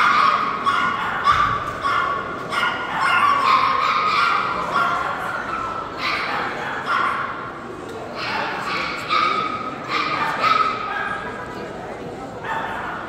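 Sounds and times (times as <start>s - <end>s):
dogs barking: 0.0s - 7.5s, 8.1s - 11.5s, 12.4s - 13.0s.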